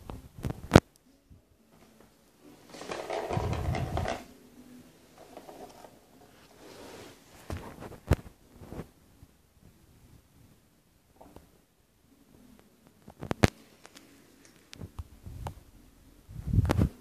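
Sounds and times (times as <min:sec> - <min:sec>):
cat toy rattle: 0:02.7 - 0:04.3.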